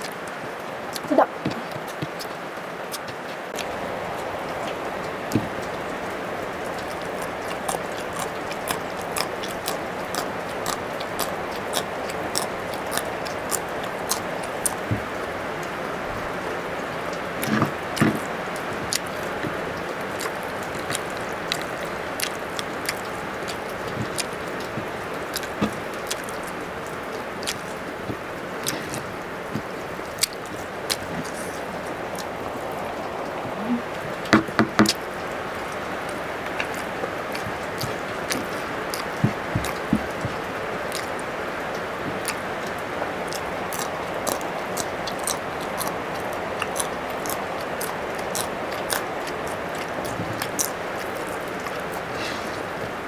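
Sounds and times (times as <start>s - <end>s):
crisp crunching chewing: 0.0s - 53.0s
steady hiss: 0.0s - 53.0s.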